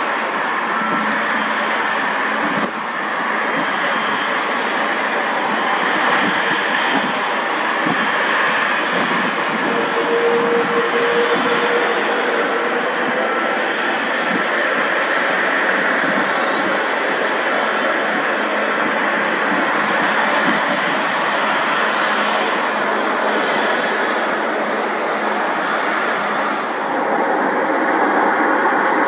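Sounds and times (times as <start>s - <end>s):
jet engines at taxi power: 0.0s - 29.0s.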